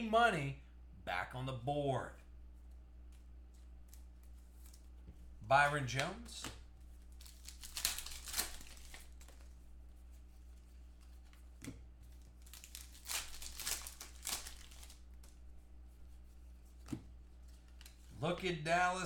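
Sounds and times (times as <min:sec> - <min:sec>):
faint low hum: 0:00.0 - 0:19.0
cards rustling: 0:02.6 - 0:05.3, 0:05.9 - 0:15.4, 0:16.1 - 0:18.6.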